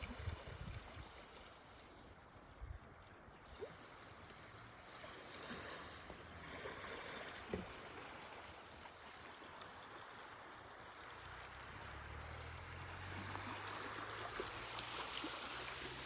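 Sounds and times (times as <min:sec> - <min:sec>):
waves lapping on pebble shore: 0:03.4 - 0:16.0.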